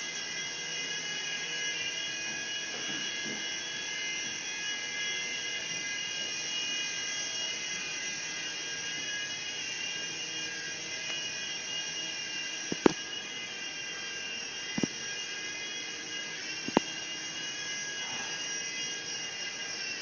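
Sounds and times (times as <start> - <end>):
toy helicopter motors whining: 0.0 - 20.0.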